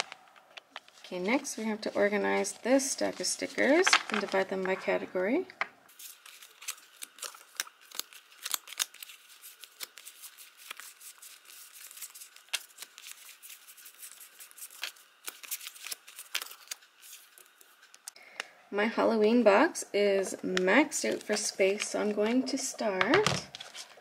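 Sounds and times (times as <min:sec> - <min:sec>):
sticker sheets clicking and rustling: 0:06.0 - 0:18.2.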